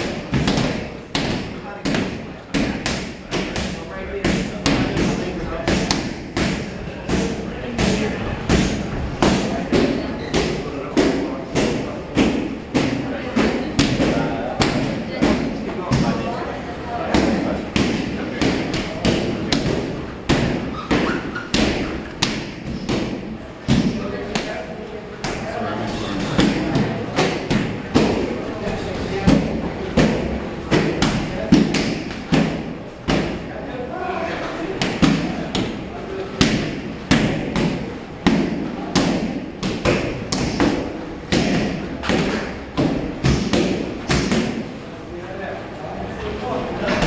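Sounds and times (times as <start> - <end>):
strikes smacking pads: 36.4 - 44.6.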